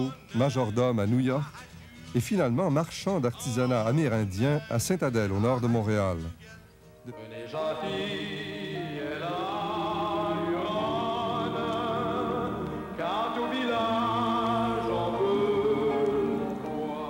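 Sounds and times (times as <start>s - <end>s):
choir singing held notes: 7.1s - 17.0s.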